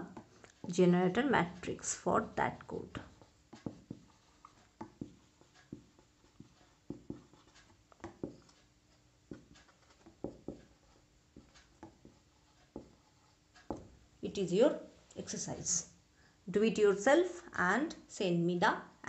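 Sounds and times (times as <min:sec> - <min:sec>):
marker pen writing on paper: 0:00.0 - 0:14.1.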